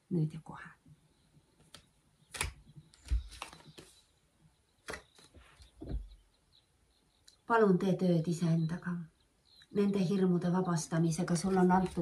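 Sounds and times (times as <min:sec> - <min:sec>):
cards clicking and flicking: 0:01.6 - 0:03.9, 0:04.8 - 0:05.3
cards thumping on table: 0:02.3 - 0:03.8.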